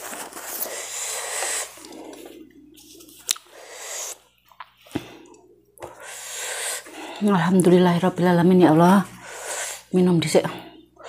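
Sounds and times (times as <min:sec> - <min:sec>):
person sniffling and breathing hard: 0:00.0 - 0:04.2, 0:05.9 - 0:07.2, 0:09.1 - 0:10.0.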